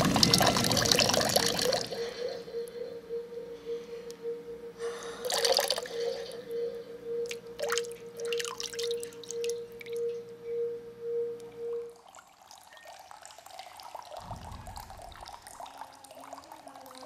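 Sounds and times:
water dripping and splashing: 0:00.0 - 0:02.0, 0:07.6 - 0:10.0, 0:12.0 - 0:17.0
steady wavering hum: 0:00.0 - 0:17.0.

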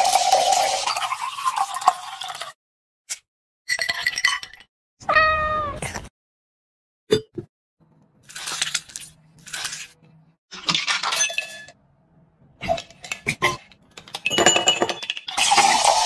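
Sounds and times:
ice and fruit clattering into glass: 0:14.1 - 0:16.0.

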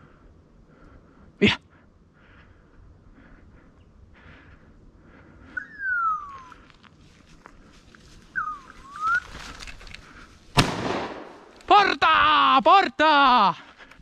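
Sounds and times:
loud whistles: 0:05.6 - 0:06.6, 0:08.4 - 0:09.3
rustling and footfalls in undergrowth: 0:05.6 - 0:11.7.

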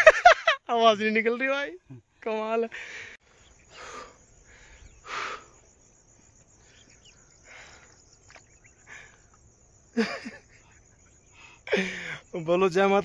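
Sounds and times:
person breathing hard: 0:02.8 - 0:05.7, 0:11.2 - 0:12.3.

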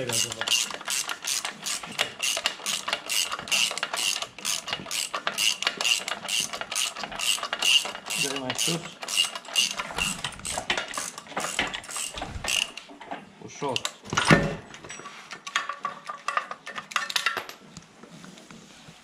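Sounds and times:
ratchet wrench clicking: 0:00.0 - 0:12.8.

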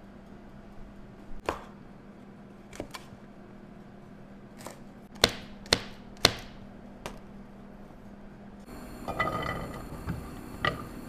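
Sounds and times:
knife chopping on wooden board: 0:05.2 - 0:06.6.

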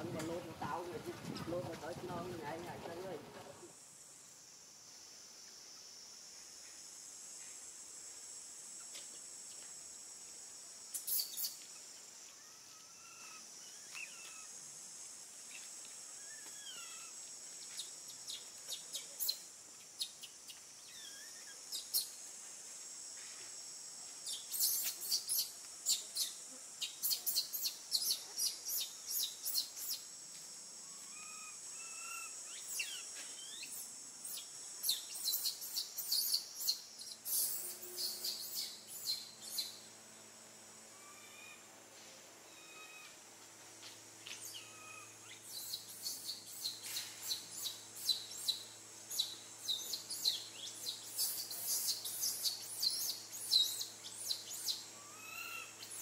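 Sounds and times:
high insect drone: 0:00.0 - 0:56.0.

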